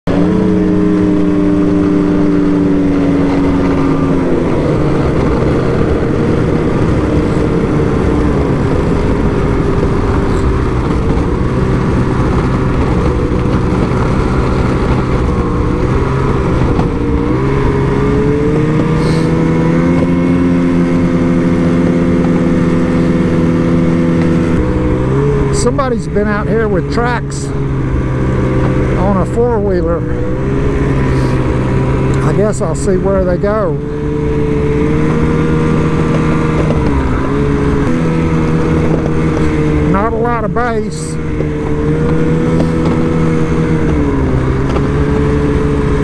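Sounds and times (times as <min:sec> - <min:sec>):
small vehicle engine running: 0:00.0 - 0:46.0.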